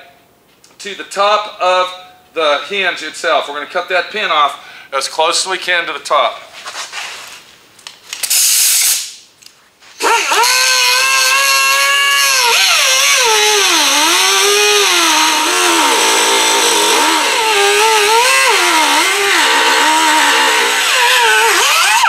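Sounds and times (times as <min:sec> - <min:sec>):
short hiss: 0:08.2 - 0:09.2
cut-off tool whining: 0:10.0 - 0:22.0.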